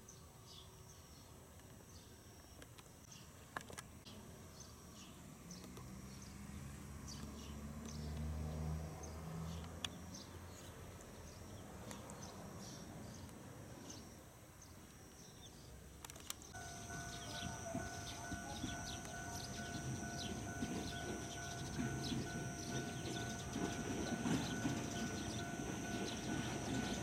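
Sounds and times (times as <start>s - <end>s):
small birds chirping: 4.0s - 8.3s, 9.0s - 27.0s
low engine hum: 16.6s - 27.0s.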